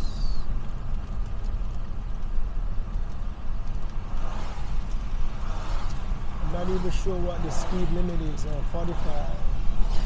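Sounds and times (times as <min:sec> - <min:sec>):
road and engine rumble in car: 0:00.0 - 0:10.0
hiss of wet road: 0:04.0 - 0:10.0.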